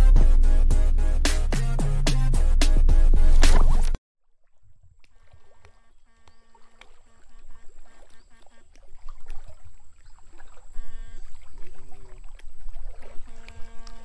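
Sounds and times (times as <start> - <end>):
water sloshing and splashing: 3.2 - 14.0
short electronic buzzing tones: 10.7 - 11.7, 13.2 - 14.0.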